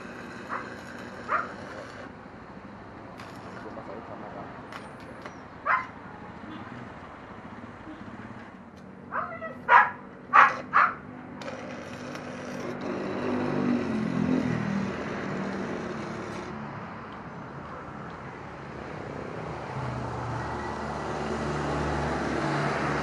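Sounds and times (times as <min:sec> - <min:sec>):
arc welder crackling and hissing: 0:00.0 - 0:02.1, 0:11.4 - 0:16.6
dog barking: 0:01.3 - 0:01.5, 0:05.7 - 0:05.9, 0:09.1 - 0:11.0.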